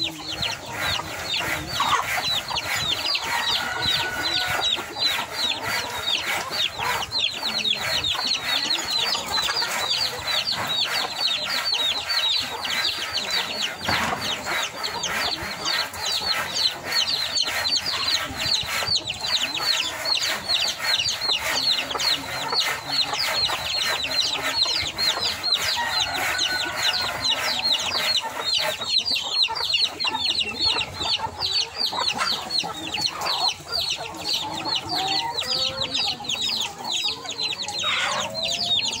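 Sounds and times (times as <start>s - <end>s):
chickens clucking: 0.0s - 39.0s.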